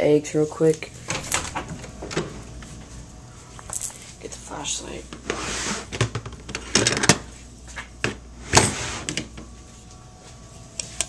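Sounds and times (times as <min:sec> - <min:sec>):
plastic containers clicking and rustling: 0:05.9 - 0:07.2.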